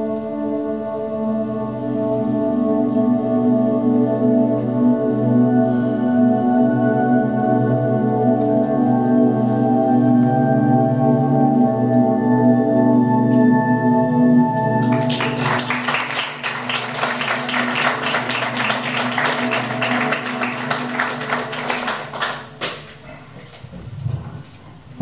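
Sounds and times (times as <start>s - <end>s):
music holding a sustained chord: 0.0s - 22.6s
audience applause: 14.8s - 23.0s.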